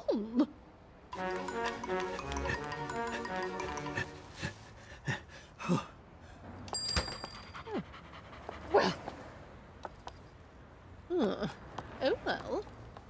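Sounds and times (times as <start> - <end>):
high bell jingle: 1.1 - 4.7, 6.7 - 7.8
small dog panting: 7.6 - 8.9.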